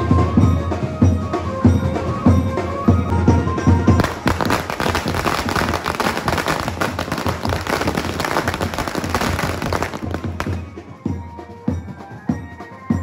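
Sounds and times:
firecrackers crackling: 0:04.0 - 0:11.0.

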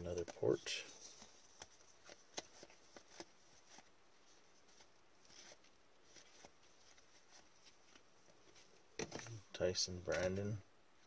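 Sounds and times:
trading cards clicking and sliding: 0:00.1 - 0:03.9, 0:10.1 - 0:10.6.

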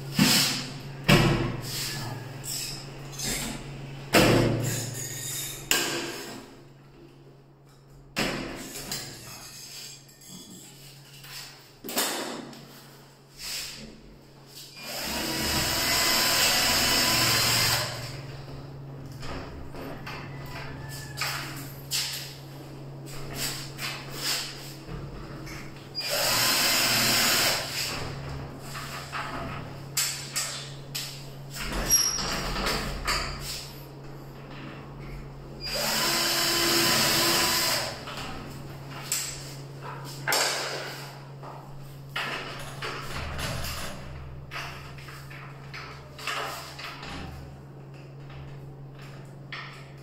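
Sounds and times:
power drill running: 0:14.8 - 0:18.1, 0:26.0 - 0:27.8, 0:35.6 - 0:38.0.

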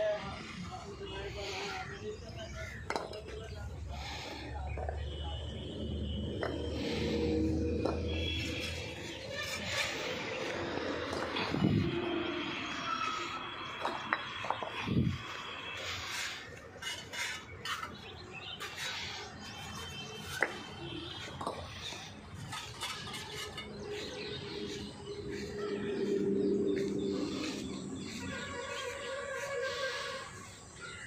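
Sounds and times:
low steady drone: 0:23.8 - 0:30.1.

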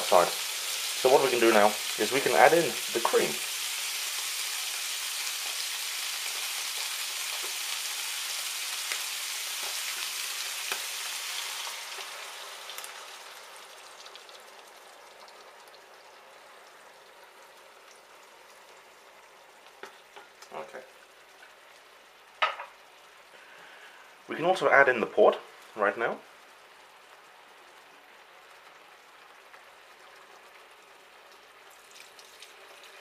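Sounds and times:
meat and onions sizzling in a pan: 0:00.0 - 0:24.2, 0:25.5 - 0:33.0
cream pouring into a pan: 0:31.7 - 0:33.0.

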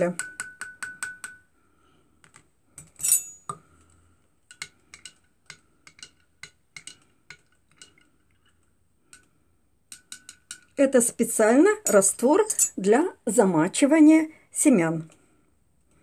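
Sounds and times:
teaspoon clinking against glass jar: 0:02.9 - 0:03.6, 0:09.9 - 0:10.8
ringing glass clink: 0:03.0 - 0:03.6.

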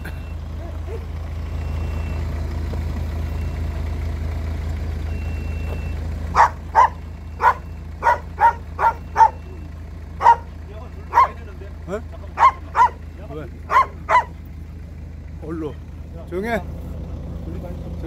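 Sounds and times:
low engine rumble: 0:00.0 - 0:18.0
dog barking: 0:00.6 - 0:01.1, 0:06.3 - 0:09.5, 0:10.2 - 0:10.5, 0:11.1 - 0:11.4, 0:12.4 - 0:13.0, 0:13.7 - 0:14.4.

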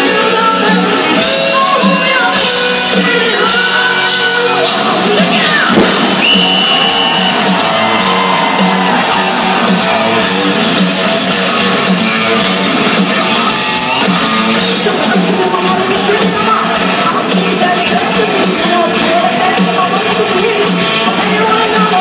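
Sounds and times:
man singing: 0:00.0 - 0:05.8, 0:14.6 - 0:22.0
hard rock band playing live: 0:00.0 - 0:22.0
stadium crowd: 0:00.0 - 0:22.0.

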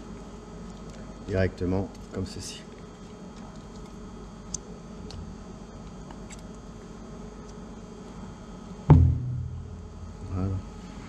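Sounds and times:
loud low thud: 0:08.9 - 0:10.1.

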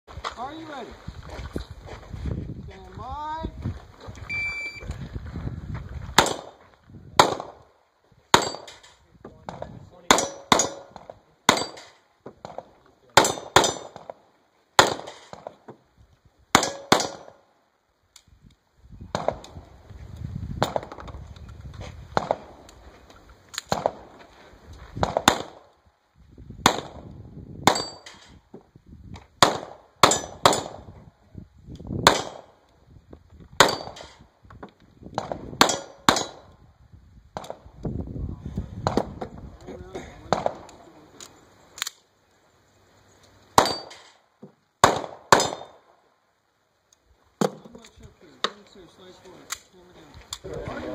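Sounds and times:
pistol shots: 0:06.2 - 0:06.6, 0:07.2 - 0:07.6, 0:08.3 - 0:08.8, 0:10.0 - 0:14.2, 0:14.8 - 0:15.6, 0:16.5 - 0:17.4, 0:23.6 - 0:24.1, 0:25.0 - 0:25.7, 0:26.6 - 0:28.2, 0:29.4 - 0:30.9, 0:32.0 - 0:32.6, 0:33.6 - 0:34.2, 0:35.2 - 0:36.5, 0:40.3 - 0:40.8, 0:43.6 - 0:44.2, 0:44.8 - 0:45.9.

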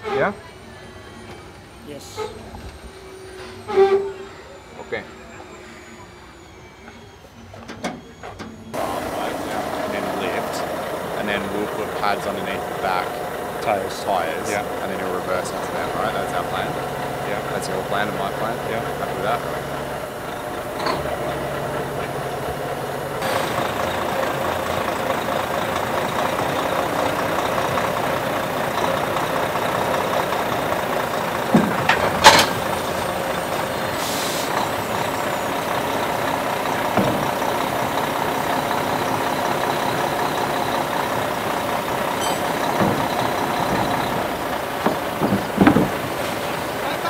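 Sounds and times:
truck diesel engine running: 0:00.0 - 0:47.0
air brake hiss: 0:33.9 - 0:34.6.

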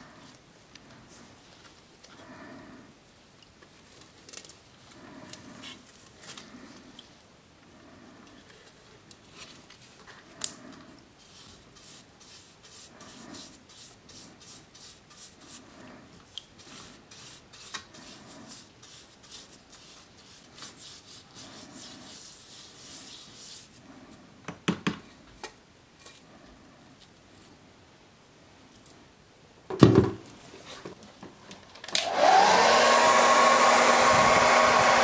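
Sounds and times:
bristle brush scrubbing metal: 0:11.2 - 0:23.8.

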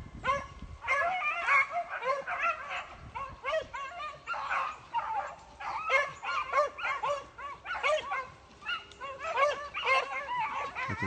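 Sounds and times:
hounds baying: 0:00.2 - 0:11.0.

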